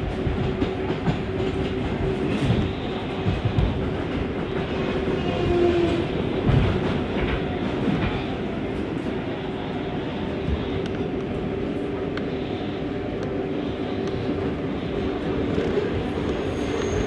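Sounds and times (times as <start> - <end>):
clacks over rail joints: 0.0 - 8.4
train wheels rumbling on rail: 0.0 - 17.0.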